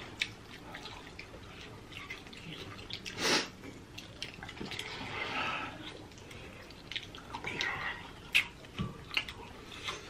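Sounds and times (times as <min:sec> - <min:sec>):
people chewing wet food: 0:00.0 - 0:10.0
hiss of air through lips: 0:03.2 - 0:03.6.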